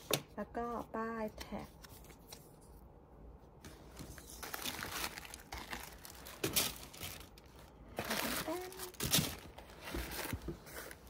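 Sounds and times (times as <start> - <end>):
packaging rustling and crinkling: 3.7 - 11.0.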